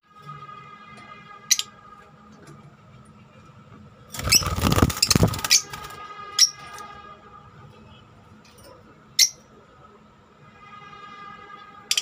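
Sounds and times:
bird wings fluttering: 0:04.2 - 0:06.0
bird high squeaks: 0:04.2 - 0:06.6.

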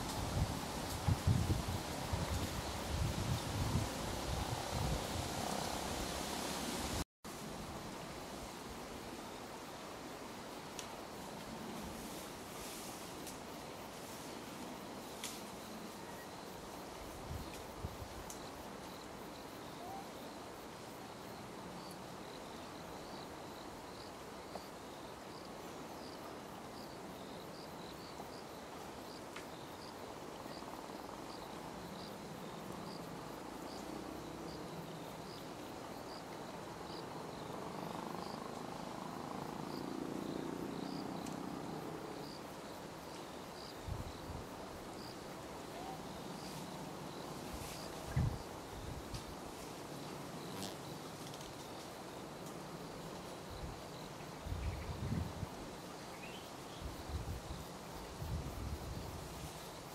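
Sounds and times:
soft outdoor background noise: 0:00.0 - 0:59.9
cricket chirping: 0:08.4 - 0:59.9.

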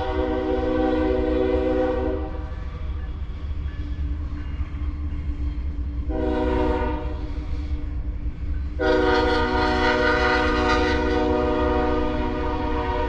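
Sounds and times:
locomotive air horn blasts: 0:00.0 - 0:02.4, 0:06.1 - 0:07.3, 0:08.8 - 0:13.0.

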